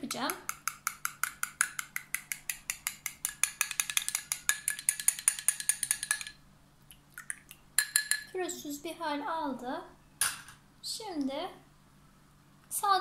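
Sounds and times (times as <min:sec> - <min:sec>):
metal spoon clinking against glass: 0:07.8 - 0:08.3.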